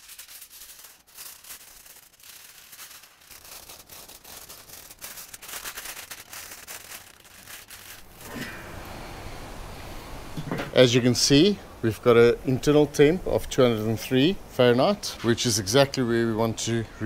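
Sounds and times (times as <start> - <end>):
aluminium foil crinkling: 0.0 - 8.6.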